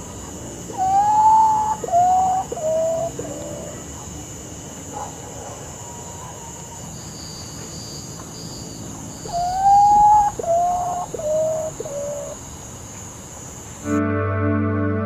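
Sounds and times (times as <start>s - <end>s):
bird's mournful whistles: 0.7s - 3.6s, 9.3s - 12.4s.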